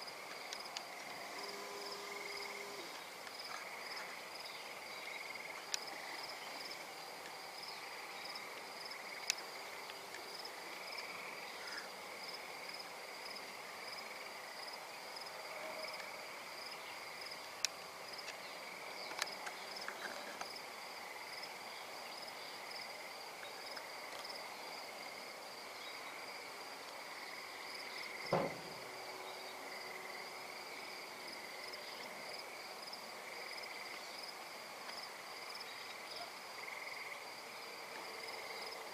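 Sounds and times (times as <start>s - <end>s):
crickets trilling: 0.0s - 38.9s
short knock: 28.3s - 28.8s.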